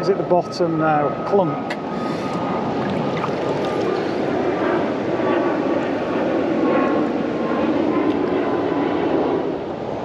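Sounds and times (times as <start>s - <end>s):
water rushing over weir: 2.3s - 4.3s.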